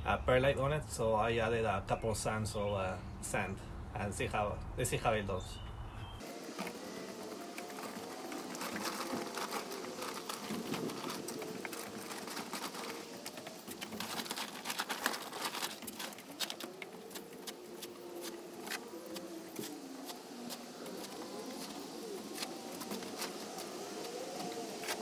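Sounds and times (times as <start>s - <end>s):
loose soil pattering and sliding: 6.2s - 25.0s
plastic tarp crinkling and rustling: 6.2s - 25.0s.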